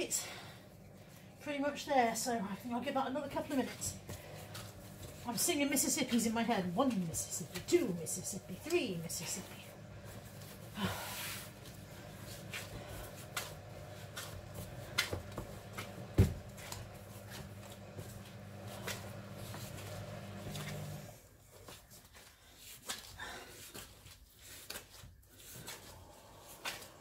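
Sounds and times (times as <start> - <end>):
low steady hum: 0.0 - 21.4
dough being kneaded: 0.2 - 27.0.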